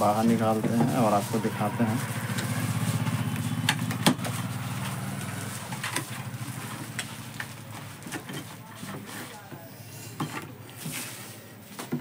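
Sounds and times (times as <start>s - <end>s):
bubble wrap crackling: 0.0s - 8.2s
engine low throb: 0.1s - 8.1s.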